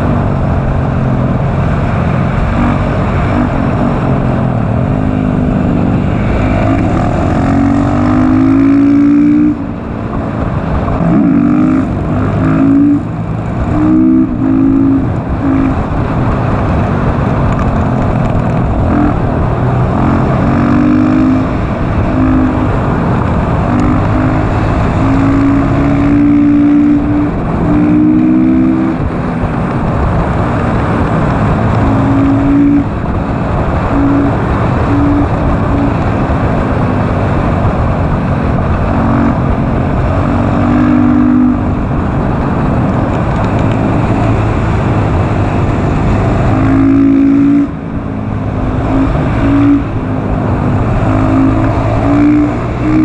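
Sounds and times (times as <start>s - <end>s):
motorcycle engine revving: 0.0s - 53.0s
wind rush on microphone: 0.0s - 53.0s.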